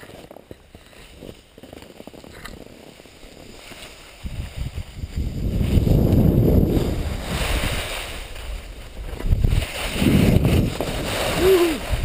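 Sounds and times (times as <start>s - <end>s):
skis scraping over snow: 0.0s - 12.0s
wind buffeting microphone: 4.2s - 12.0s.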